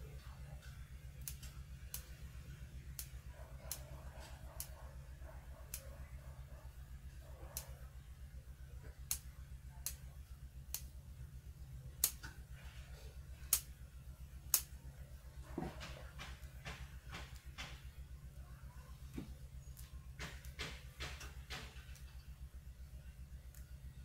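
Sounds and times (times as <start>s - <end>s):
steady low hum: 0.0s - 24.0s
pruning scissors snipping twigs: 0.6s - 2.2s, 12.0s - 12.4s, 14.5s - 14.7s.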